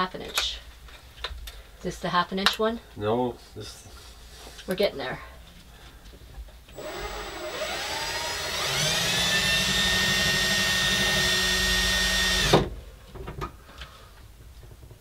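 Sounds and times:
power drill boring: 6.7s - 12.6s.

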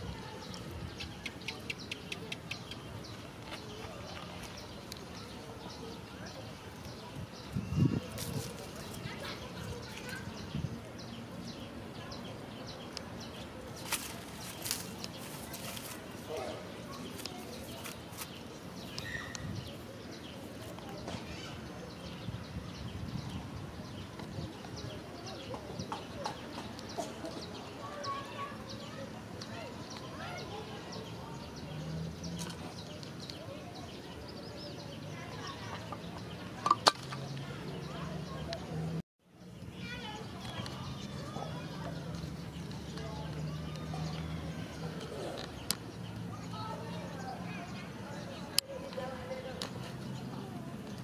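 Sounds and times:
bird chirping: 0.4s - 39.0s.

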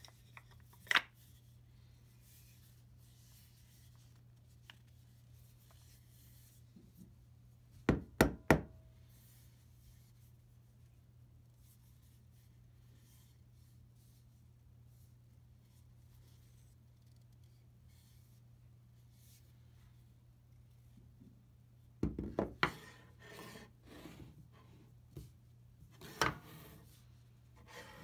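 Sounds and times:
faint steady hum: 0.0s - 28.0s
wooden mallet knocking on workbench: 7.9s - 8.7s, 22.0s - 22.8s.

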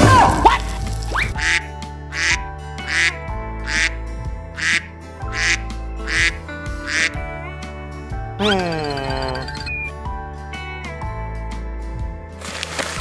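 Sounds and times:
background music: 0.0s - 13.0s
duck quacking: 1.4s - 4.0s, 4.6s - 7.2s.

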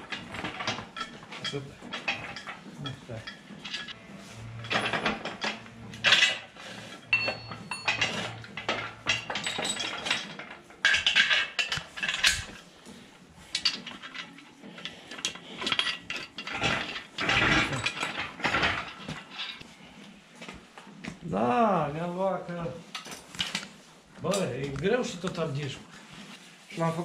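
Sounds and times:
metal clanks and clinks: 0.0s - 12.7s, 13.5s - 19.6s, 22.9s - 23.7s.

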